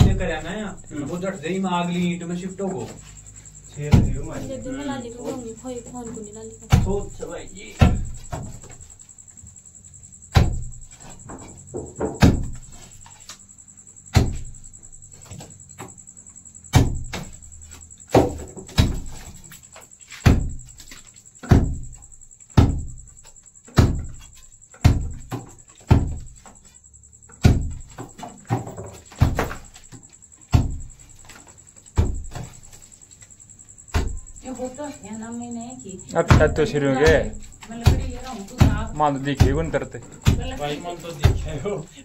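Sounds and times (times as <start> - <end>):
hand tool striking brick wall: 3.7 - 4.4, 10.3 - 13.3, 14.1 - 16.0, 16.7 - 19.5, 20.1 - 26.6, 27.3 - 32.8, 33.9 - 34.4, 36.3 - 41.7.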